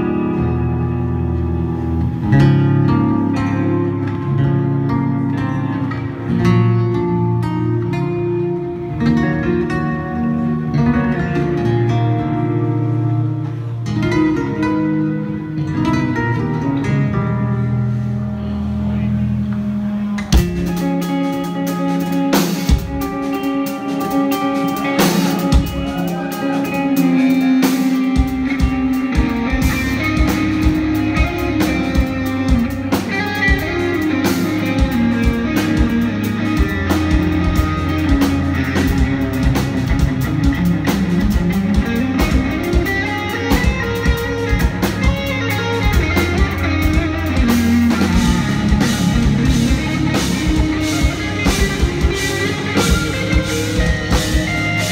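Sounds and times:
electric guitars playing metal: 0:00.0 - 0:54.9
drum kit: 0:19.4 - 0:54.9.

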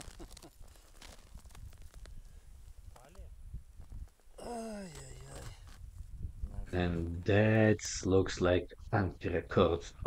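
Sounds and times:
wind rumble on microphone: 0:01.2 - 0:04.2, 0:05.4 - 0:07.3.

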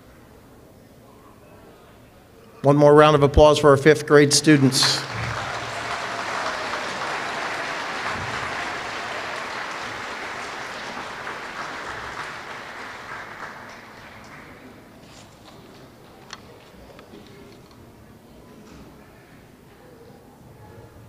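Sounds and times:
audience applauding: 0:04.3 - 0:17.0.

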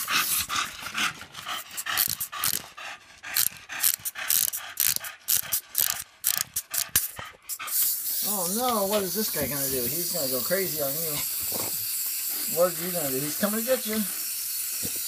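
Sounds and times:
dog sounds: 0:00.0 - 0:11.8
clockwork toy clicking: 0:03.3 - 0:09.4.

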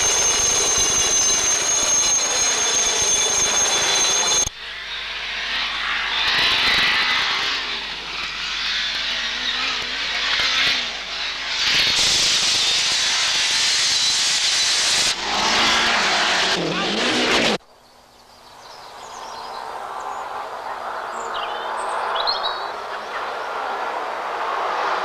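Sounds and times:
helicopter turbine whine: 0:00.0 - 0:17.6, 0:18.6 - 0:25.0
rally car engine: 0:05.2 - 0:17.6.

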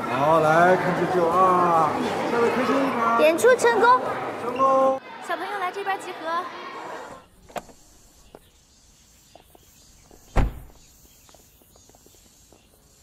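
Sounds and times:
car door shutting: 0:10.1 - 0:10.8.

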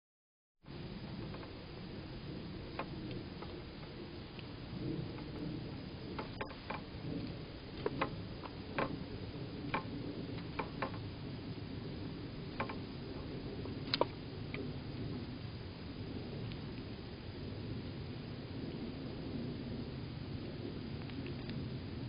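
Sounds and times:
low background hum: 0:00.7 - 0:22.0
squirrel clicking at seed feeder: 0:06.1 - 0:11.1, 0:12.5 - 0:13.0, 0:13.8 - 0:14.6.

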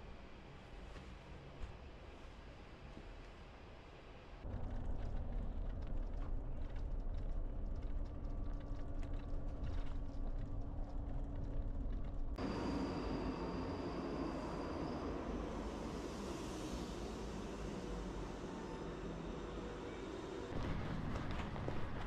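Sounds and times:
vehicle low rumble: 0:04.4 - 0:22.0.

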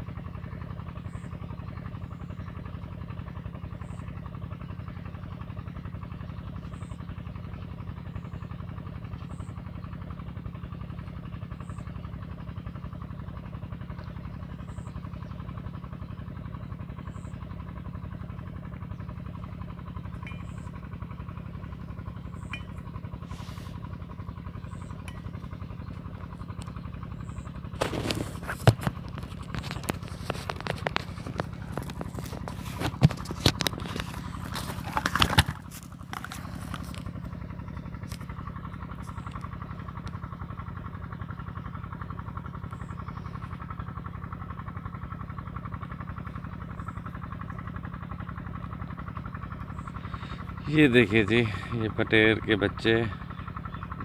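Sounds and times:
steady low hum: 0:00.0 - 0:54.0
handling knocks and rattles: 0:27.7 - 0:37.4.

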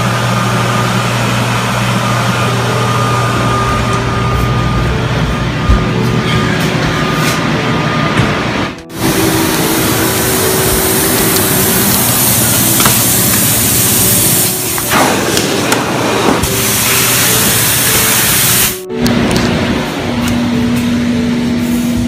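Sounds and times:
water vacuum sucking water: 0:08.9 - 0:18.9.

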